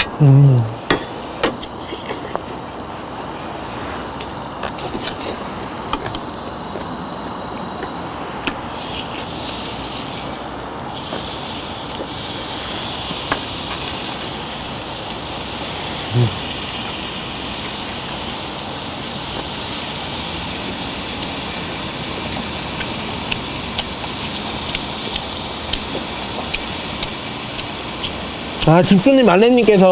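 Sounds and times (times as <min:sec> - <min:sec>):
beef sizzling: 0:03.6 - 0:29.9
fat crackling and popping: 0:07.6 - 0:28.8.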